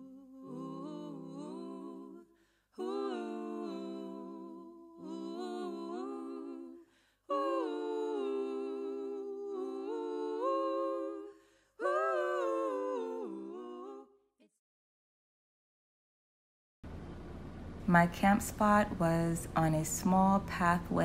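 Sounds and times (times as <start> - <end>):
layered wordless humming vocals: 0.0 - 14.2, 17.8 - 21.0.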